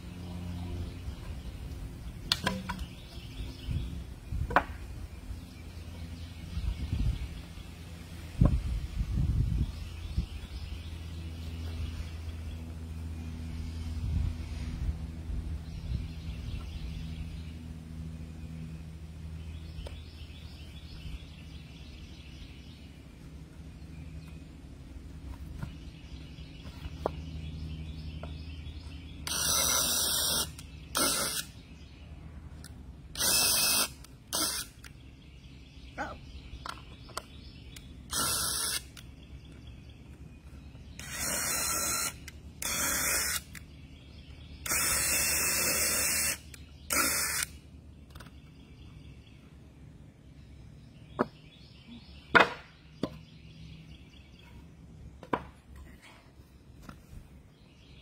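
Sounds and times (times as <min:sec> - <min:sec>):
low steady hum: 0:00.0 - 0:58.0
cordless drill drilling wood: 0:29.3 - 0:31.4, 0:33.2 - 0:34.6, 0:38.1 - 0:38.8, 0:41.0 - 0:43.5, 0:44.6 - 0:47.5.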